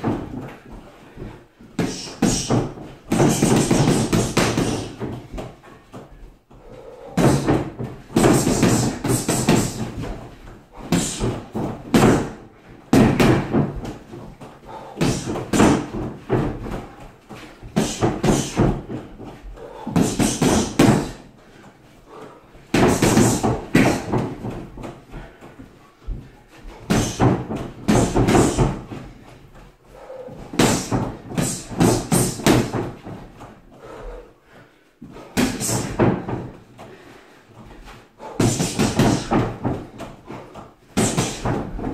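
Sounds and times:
gloves punching a punchbag: 0:01.8 - 0:05.5, 0:07.1 - 0:10.2, 0:10.8 - 0:14.1, 0:14.8 - 0:17.0, 0:17.7 - 0:19.1, 0:19.9 - 0:21.2, 0:22.7 - 0:24.9, 0:26.8 - 0:29.0, 0:30.3 - 0:33.2, 0:35.2 - 0:36.6, 0:38.2 - 0:40.1, 0:41.0 - 0:41.9.

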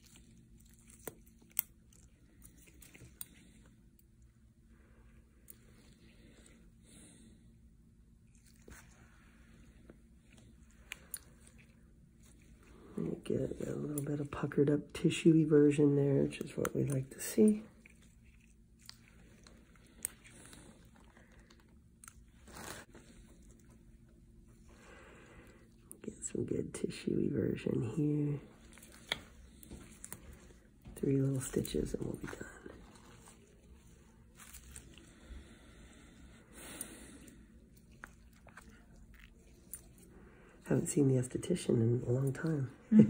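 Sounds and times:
soft breathy rustle: 0:28.4 - 0:40.8.

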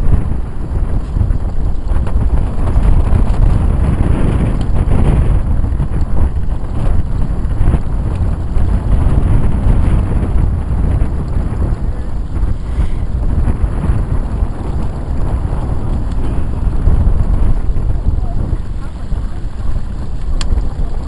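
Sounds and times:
wind buffeting microphone: 0:00.0 - 0:21.0
people wading through dry reeds: 0:11.4 - 0:21.0.

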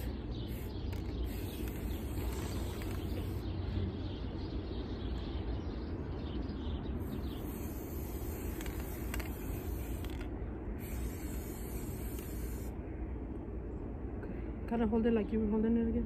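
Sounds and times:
faint bird chirps: 0:00.0 - 0:10.1
steady low rumble: 0:00.0 - 0:16.0.

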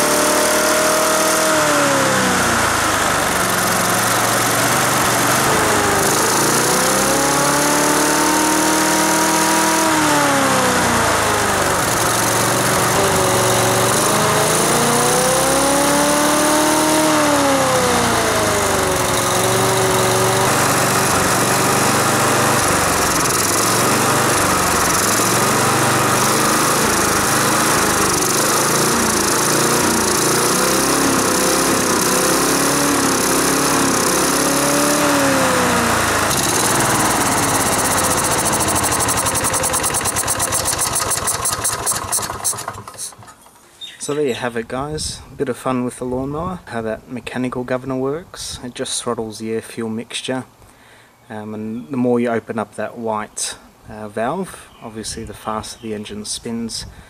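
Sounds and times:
lawn mower engine revving: 0:00.0 - 0:45.1.

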